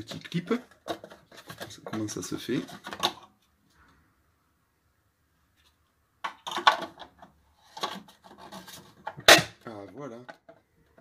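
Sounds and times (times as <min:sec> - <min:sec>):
plastic scraping on metal: 0:00.0 - 0:03.3, 0:06.4 - 0:11.0.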